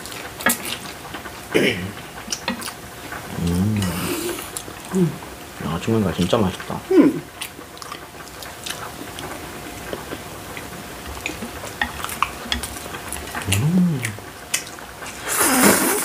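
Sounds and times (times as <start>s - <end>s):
chewing: 0.0s - 5.3s, 6.2s - 15.9s
person humming: 3.3s - 5.2s, 13.4s - 14.2s.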